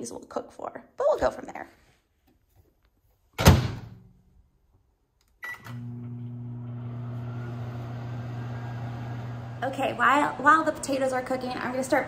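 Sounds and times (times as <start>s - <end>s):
microwave humming: 5.4s - 12.0s.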